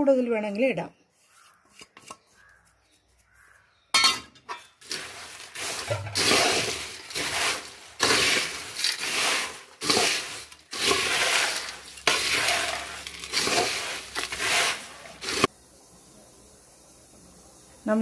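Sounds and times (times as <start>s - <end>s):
snack crunching in metal pot: 4.8s - 15.5s.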